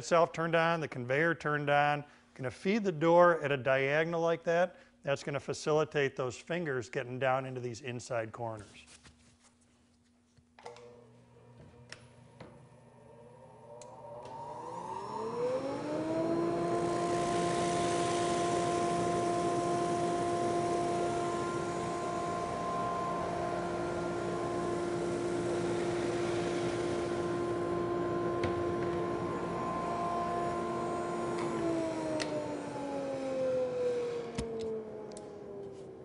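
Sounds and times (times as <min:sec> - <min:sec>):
sander motor whine: 0:10.7 - 0:36.0.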